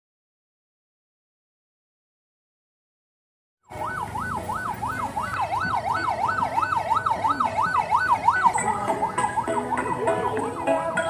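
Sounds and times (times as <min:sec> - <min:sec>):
ambulance siren yelping: 0:03.7 - 0:11.0.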